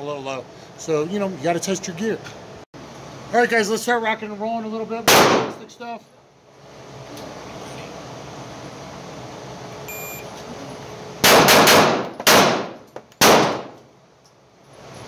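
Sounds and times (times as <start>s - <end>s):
pistol shots: 5.1s - 5.6s, 11.2s - 13.8s
shot timer beep: 9.9s - 10.3s.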